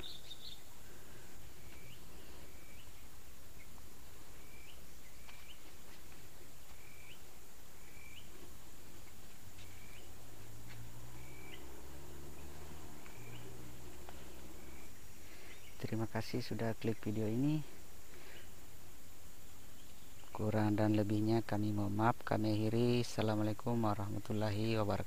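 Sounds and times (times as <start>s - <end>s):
bird chirping: 0.0s - 18.6s, 19.4s - 25.0s
faint low hum: 0.0s - 25.0s
outdoor hiss: 0.0s - 25.0s.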